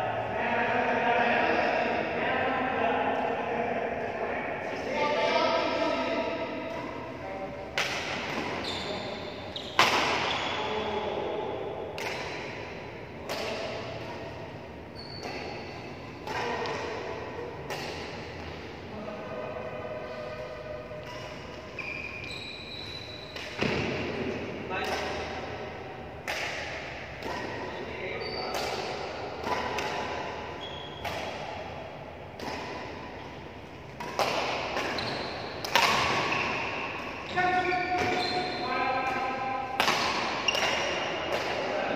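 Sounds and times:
badminton racket hitting shuttlecock: 7.7 - 8.6, 9.7 - 10.3, 12.0 - 14.3, 15.2 - 18.6, 24.8 - 27.6, 28.5 - 38.2, 39.0 - 41.7.

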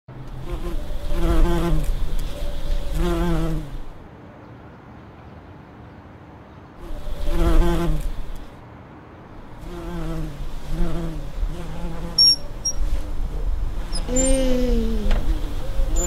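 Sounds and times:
bumblebee buzzing: 0.2 - 4.0, 6.8 - 8.5, 9.4 - 16.0.

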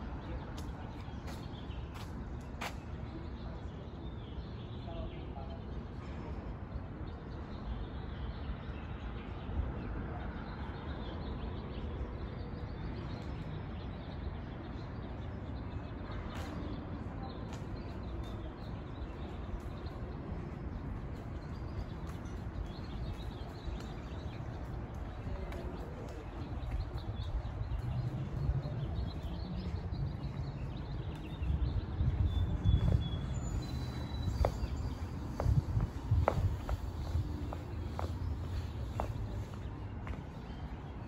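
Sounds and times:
wind buffeting microphone: 18.9 - 41.0.

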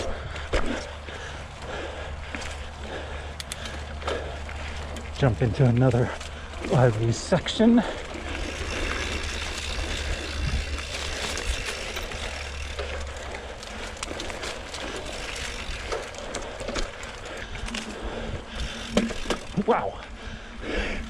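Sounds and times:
bike clicking and rattling: 0.0 - 21.0
bike tyres on dirt trail: 0.0 - 21.0.

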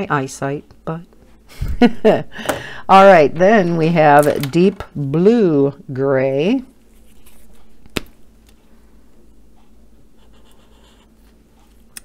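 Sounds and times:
marker nib scratching on paper: 10.2 - 11.1.

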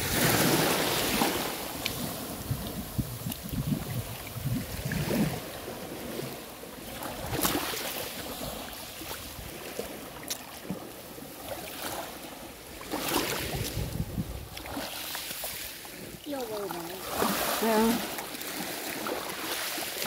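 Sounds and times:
wind rumble on microphone: 0.0 - 10.1, 12.8 - 14.9
waves washing onto pebbly shore: 0.0 - 20.0.

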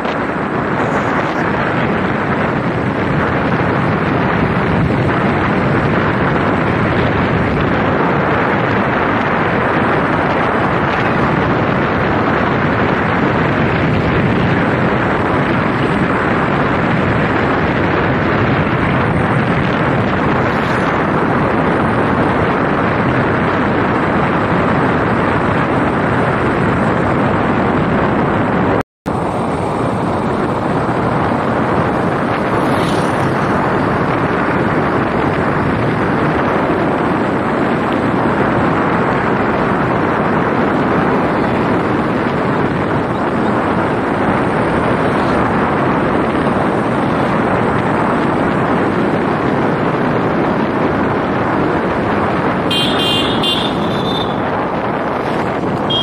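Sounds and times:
road and engine noise: 0.0 - 56.0
wind rush on microphone: 0.0 - 56.0.

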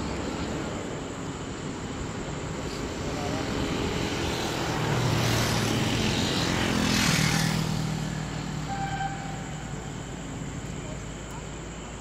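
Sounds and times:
vehicle passing: 2.5 - 10.7.

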